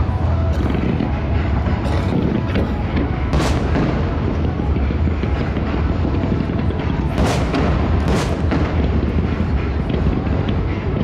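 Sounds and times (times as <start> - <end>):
low rumble: 0.0 - 11.0
fireworks bursting: 2.5 - 11.0.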